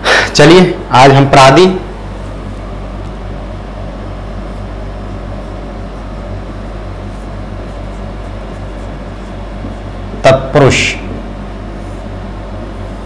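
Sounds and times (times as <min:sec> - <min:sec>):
low electrical hum: 0:00.0 - 0:13.0
marker scratching on whiteboard: 0:05.4 - 0:10.2.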